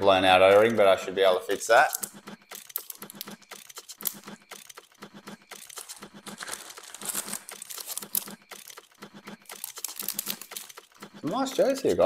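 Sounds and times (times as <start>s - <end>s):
plastic bag crinkling: 5.7s - 8.3s.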